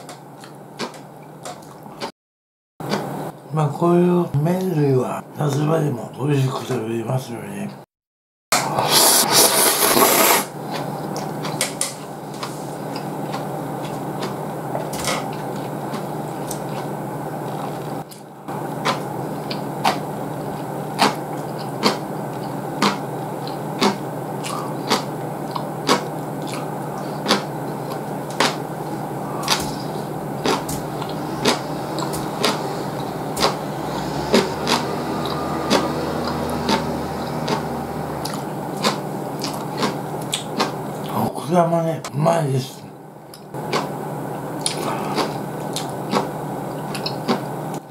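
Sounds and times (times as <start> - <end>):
person slurping noodles: 8.6 - 10.9, 23.8 - 40.7, 44.6 - 45.4
low hum: 12.1 - 41.1
wet chewing clicks: 12.9 - 32.6, 38.2 - 41.2, 43.3 - 43.9, 44.6 - 47.8.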